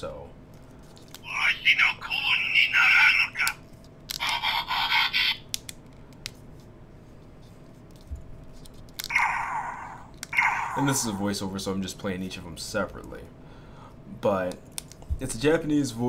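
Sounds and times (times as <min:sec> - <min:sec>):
toy blaster electronic effects: 0:09.1 - 0:11.2.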